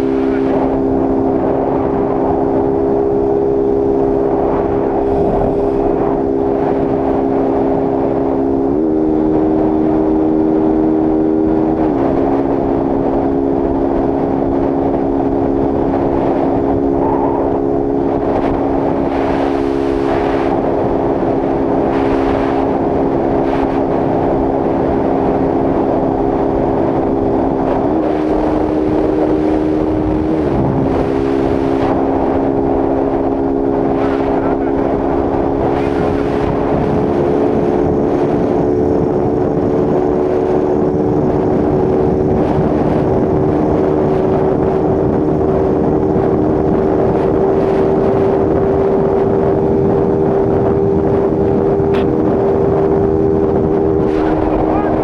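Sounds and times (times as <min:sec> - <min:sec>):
motorcycle engine at high revs: 0:00.0 - 0:55.0
wind rush: 0:00.0 - 0:55.0.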